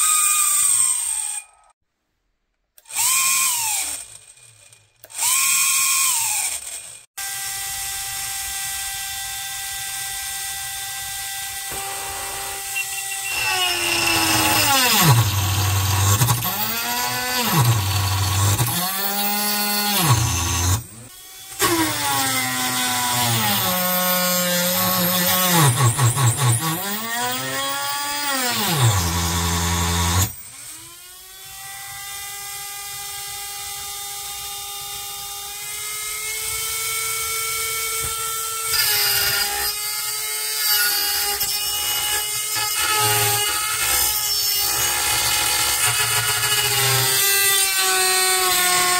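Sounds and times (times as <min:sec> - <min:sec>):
small electric motors whining: 0:11.1 - 0:22.0.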